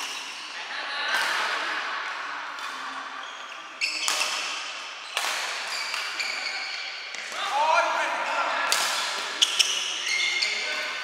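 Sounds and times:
shoe squeak: 0:03.2 - 0:07.1, 0:09.4 - 0:11.0
rackets hitting shuttlecock: 0:03.9 - 0:06.3, 0:08.6 - 0:10.0.

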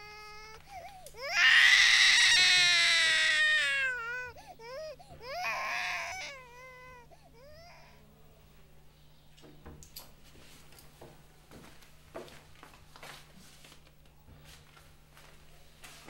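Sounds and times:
infant crying: 0:00.0 - 0:08.0
infant whimpering: 0:00.0 - 0:08.0.

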